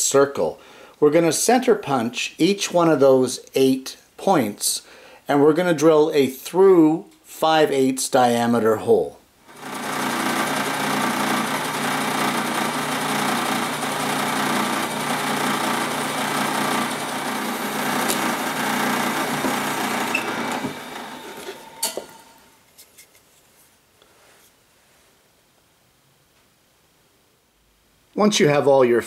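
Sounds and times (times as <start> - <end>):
drill bit cutting wood: 9.5 - 22.5
drill press motor hum: 9.5 - 22.5.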